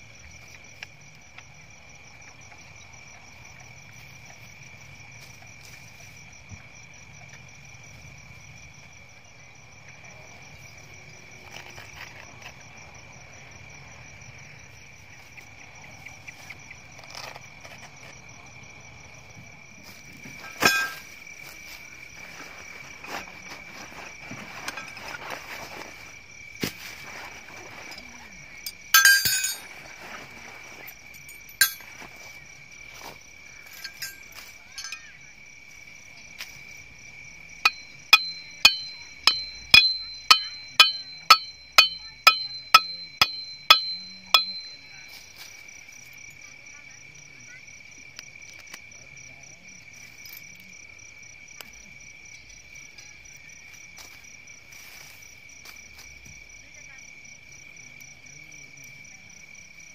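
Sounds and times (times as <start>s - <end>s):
night insects trilling: 0.0s - 59.9s
metal tent pegs clinking: 20.4s - 21.2s, 22.2s - 25.9s, 27.0s - 32.4s, 33.0s - 35.2s, 37.6s - 45.5s.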